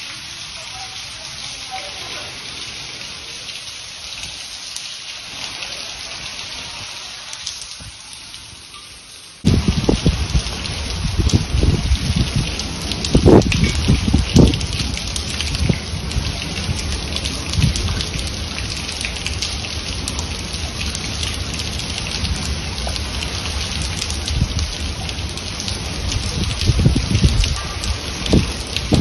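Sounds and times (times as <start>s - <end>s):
heavy rain falling: 0.0s - 29.0s
wind buffeting microphone: 9.4s - 29.0s.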